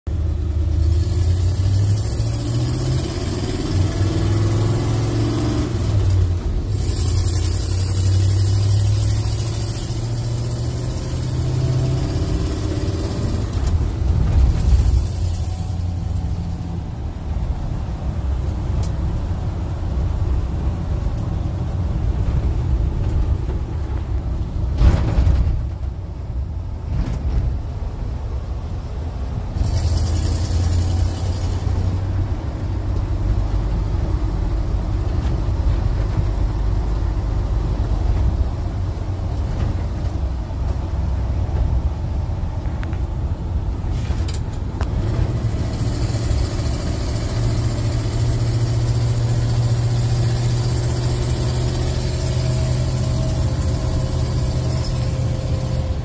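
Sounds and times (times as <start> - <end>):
pickup engine revving: 0.1 - 19.2, 29.5 - 40.2, 44.0 - 56.0.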